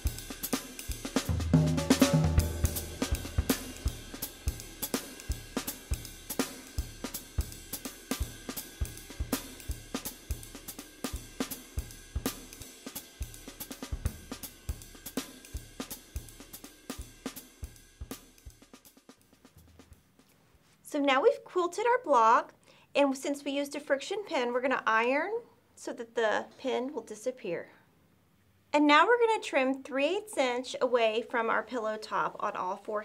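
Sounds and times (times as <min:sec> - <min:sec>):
music with drum beat: 0:00.0 - 0:20.5.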